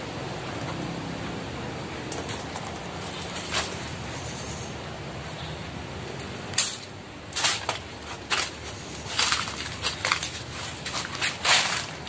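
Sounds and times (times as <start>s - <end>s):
footsteps crunching on dry leaves: 7.4s - 12.0s.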